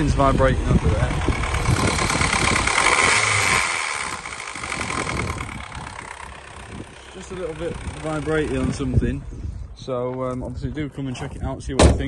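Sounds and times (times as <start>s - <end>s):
car engine idling: 0.0s - 9.5s
vibrating rattle under bonnet: 0.1s - 9.0s.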